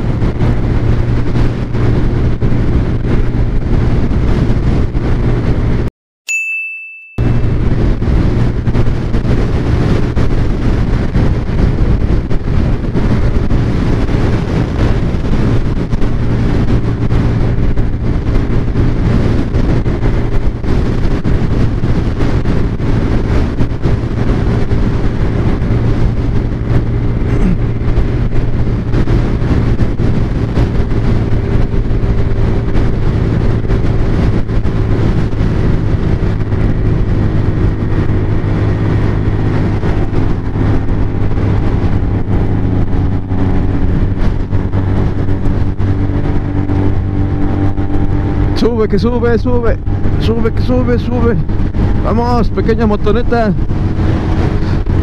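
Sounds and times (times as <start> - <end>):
wind noise: 0.0 - 5.9, 7.2 - 55.0
scooter engine running: 7.2 - 48.6.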